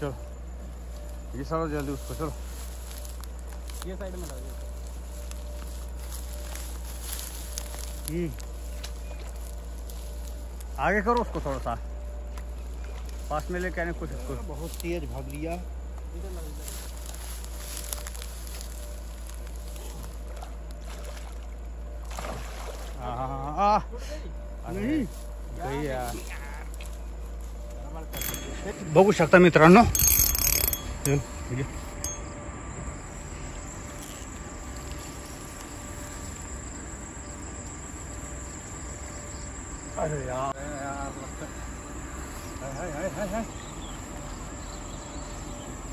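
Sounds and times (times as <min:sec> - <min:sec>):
crickets chirring: 0:00.0 - 0:45.9
steady low rumble: 0:00.0 - 0:45.9
fish splashing in water: 0:20.2 - 0:23.1.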